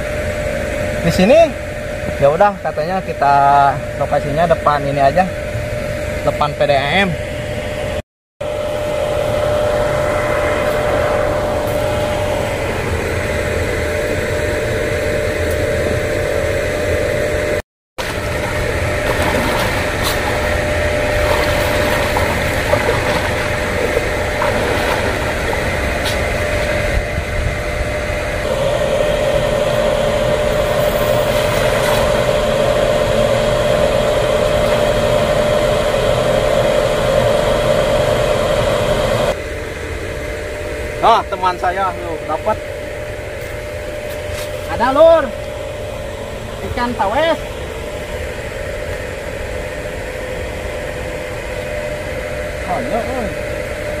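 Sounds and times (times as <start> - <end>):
machine droning: 0.0 - 54.0
rushing noise: 8.5 - 15.3.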